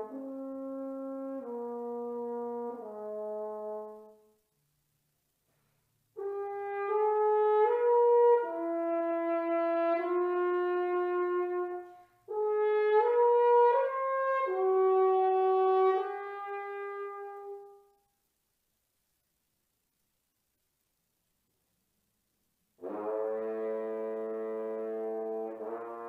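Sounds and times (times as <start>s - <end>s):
solo french horn: 0.0s - 4.6s, 6.1s - 18.2s, 22.8s - 26.0s.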